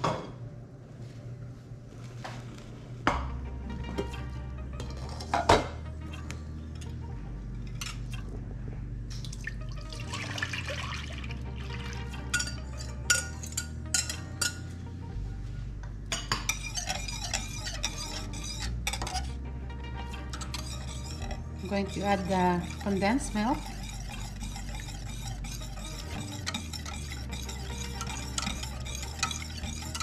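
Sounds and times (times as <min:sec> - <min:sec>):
background music: 0:01.3 - 0:30.0
liquid pouring: 0:09.2 - 0:12.1
whisk clinking in a bowl: 0:12.3 - 0:14.6, 0:16.1 - 0:19.3, 0:20.3 - 0:30.0
whisking against a metal pan: 0:16.5 - 0:19.3, 0:20.3 - 0:30.0.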